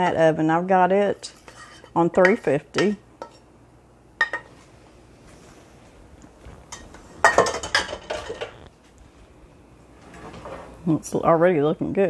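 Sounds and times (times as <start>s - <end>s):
pots and utensils clattering: 6.7s - 8.6s, 10.0s - 10.8s.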